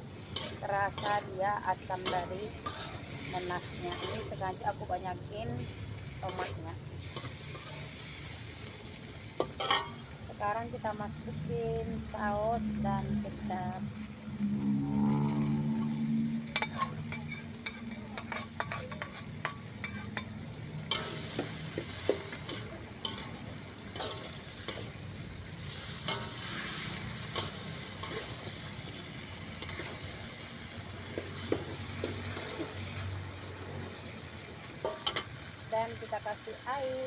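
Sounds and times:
sauce sizzling in a wok: 0.0 - 37.0
metal ladle scraping a pan: 0.1 - 8.3, 9.3 - 10.2, 14.4 - 33.8, 34.7 - 35.5.

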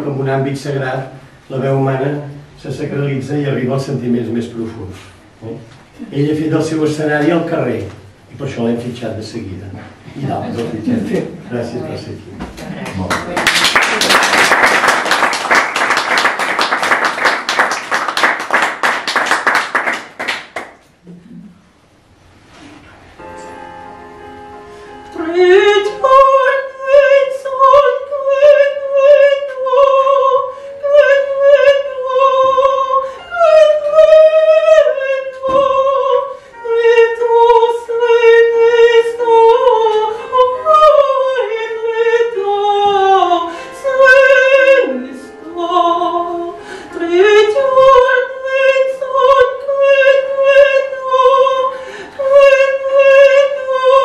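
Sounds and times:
countertenor singing: 25.1 - 54.0.

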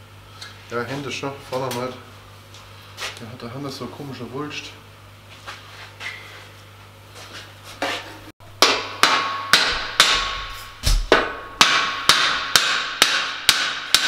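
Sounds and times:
hammer striking metal tube: 8.6 - 14.0.

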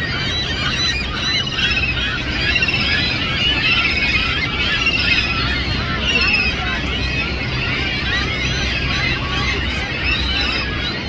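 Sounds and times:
gulls calling: 0.0 - 11.0.

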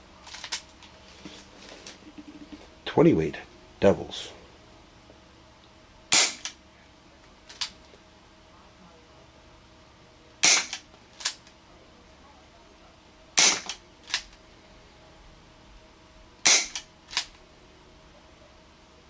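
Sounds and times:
airsoft revolver shots: 6.1 - 6.6, 10.4 - 10.8, 13.4 - 13.8, 16.4 - 16.9.

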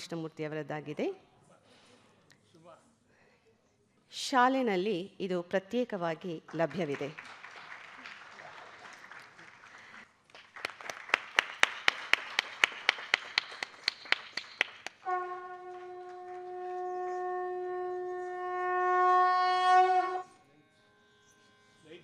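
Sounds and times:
audience clapping in rhythm: 6.5 - 16.8
conch shell blown: 15.0 - 21.8.

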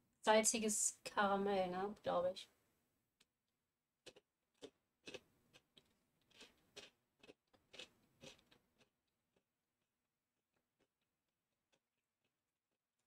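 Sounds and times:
crunching of chewed wafer: 4.0 - 13.0.

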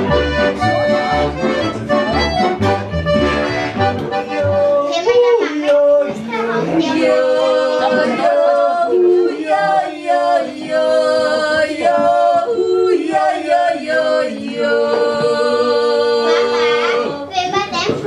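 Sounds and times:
voices yodeling in harmony: 4.2 - 17.3.

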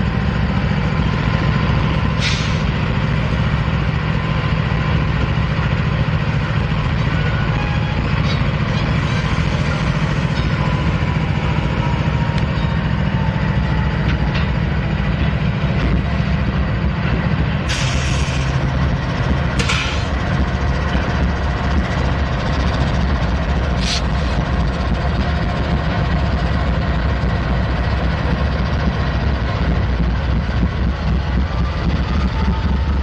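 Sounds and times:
locomotive engines droning: 0.0 - 33.0
sharp air hiss blasts: 17.7 - 18.5.

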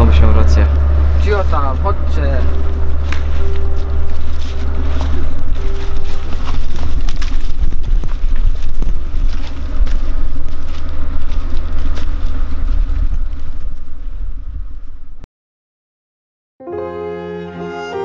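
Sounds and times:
wind buffeting microphone: 0.0 - 15.2
footsteps in dry leaves: 0.8 - 14.2.

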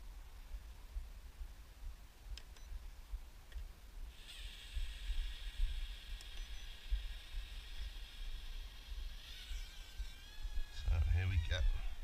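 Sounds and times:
quadcopter motors whining: 4.1 - 12.0
wind rumble on microphone: 9.9 - 12.0.

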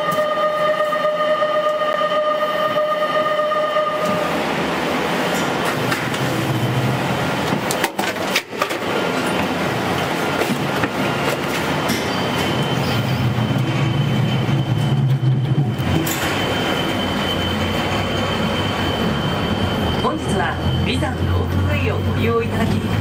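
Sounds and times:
steady high mechanical tone: 11.8 - 23.0.

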